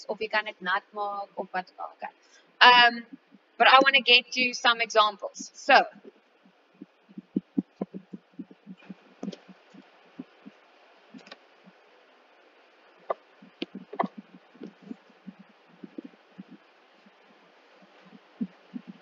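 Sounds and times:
stylus tapping on tablet screen: 0:07.1 - 0:10.6, 0:13.1 - 0:16.6.

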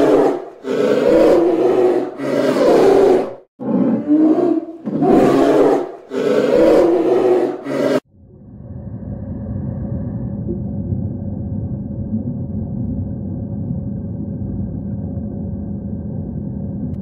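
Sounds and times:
polar bear growling: 0:00.0 - 0:08.0
low steady rumble: 0:08.1 - 0:17.0.

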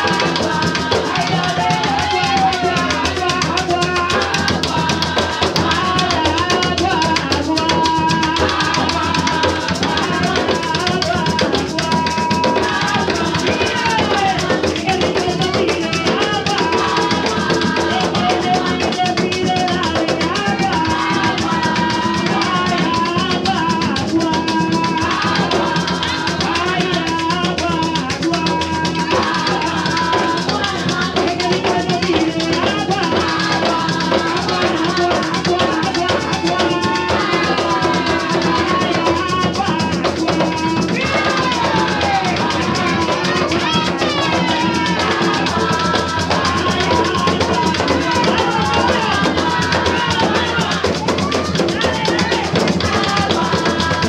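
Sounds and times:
hand drums playing: 0:00.0 - 0:54.0
maraca shaking: 0:00.0 - 0:54.0
woman singing: 0:00.0 - 0:54.0.

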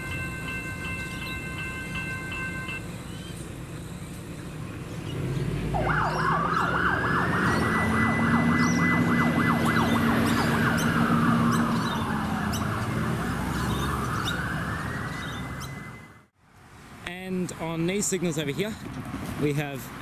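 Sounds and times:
siren wailing: 0:05.7 - 0:16.3
siren yelping: 0:05.7 - 0:16.3.

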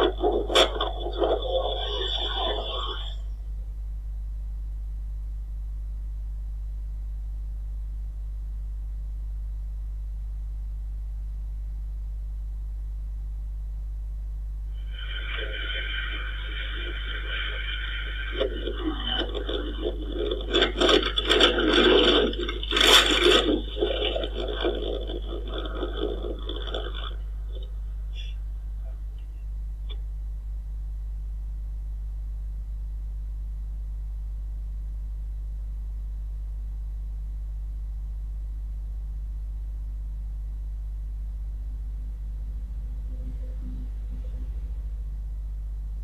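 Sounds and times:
car body scraping and rattling: 0:00.0 - 0:02.7, 0:15.4 - 0:27.6
steady low rumble: 0:00.0 - 0:46.0.

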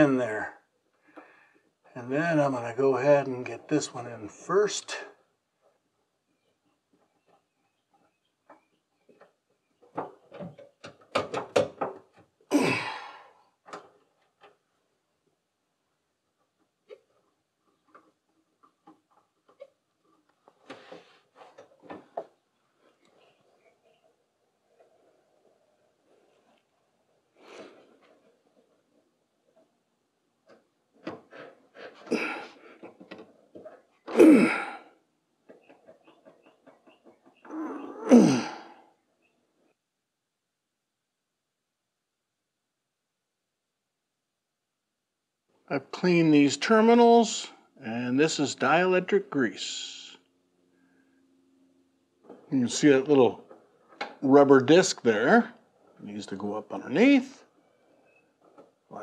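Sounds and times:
car parts clicking and knocking: 0:08.4 - 0:12.4
man's breathy vocal outbursts: 0:12.5 - 0:13.4, 0:34.2 - 0:34.8, 0:37.5 - 0:38.8.

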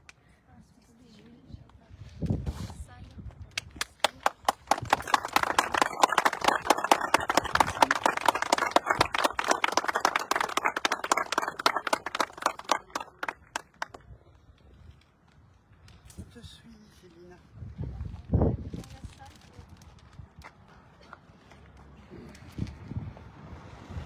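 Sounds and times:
people applauding: 0:03.8 - 0:14.0.

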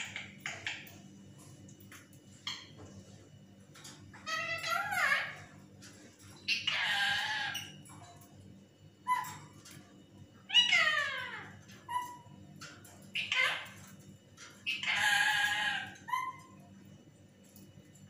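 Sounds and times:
parakeet calling: 0:00.0 - 0:00.9, 0:04.1 - 0:05.6, 0:06.4 - 0:07.9, 0:09.0 - 0:09.6, 0:10.4 - 0:12.4, 0:13.1 - 0:13.9, 0:14.5 - 0:16.6.

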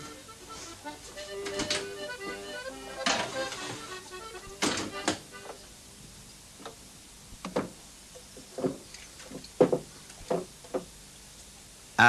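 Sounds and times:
wooden planks knocking and thudding: 0:08.5 - 0:10.9.

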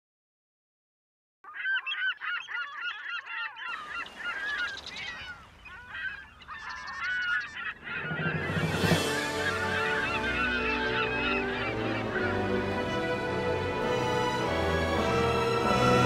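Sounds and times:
flock of birds calling: 0:01.5 - 0:16.0.

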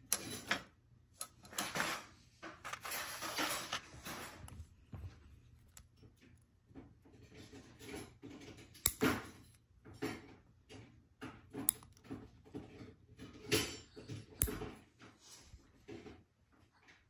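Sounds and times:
small objects clicking and rustling: 0:02.6 - 0:04.6.

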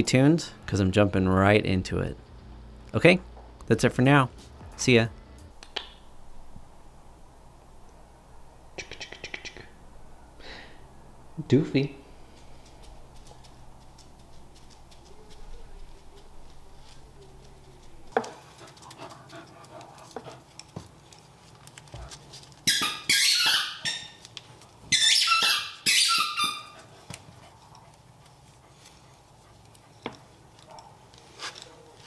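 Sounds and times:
dog yipping and whining: 0:22.6 - 0:24.2, 0:24.9 - 0:26.9.

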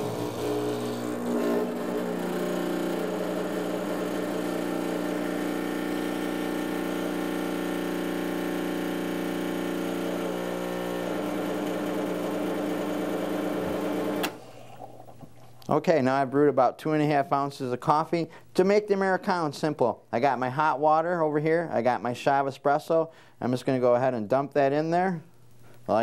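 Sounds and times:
espresso machine pump buzzing: 0:00.0 - 0:15.0.

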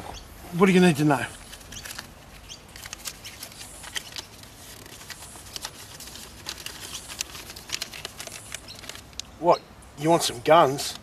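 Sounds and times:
rustling and crackling clicks: 0:01.3 - 0:09.3.

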